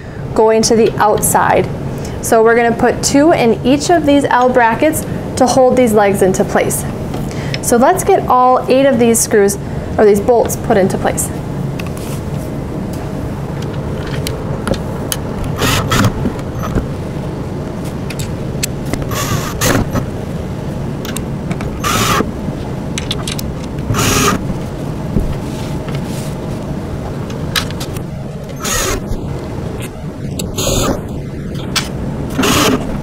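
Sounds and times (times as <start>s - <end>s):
steady low hum: 0.0s - 33.0s
cordless drill driving bolts: 15.6s - 16.7s, 19.1s - 20.0s, 21.8s - 22.3s, 23.9s - 24.4s, 28.5s - 29.0s, 32.3s - 32.9s.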